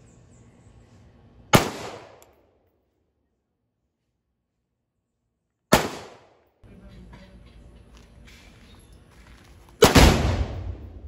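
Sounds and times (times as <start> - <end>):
rifle shot crack: 1.5 - 2.3, 5.7 - 6.4, 9.8 - 11.0.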